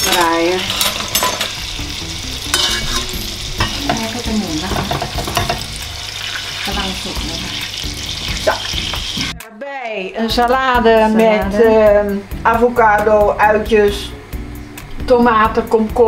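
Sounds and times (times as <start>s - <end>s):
utensils scraping a pan: 0.0s - 1.7s, 2.4s - 6.8s
pork sizzling in a pan: 0.0s - 9.4s.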